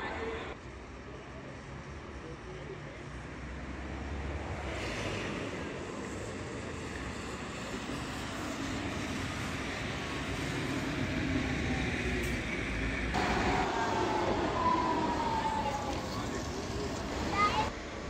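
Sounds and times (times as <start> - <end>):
bus driving past: 3.6 - 18.0
tram whine: 5.3 - 18.0.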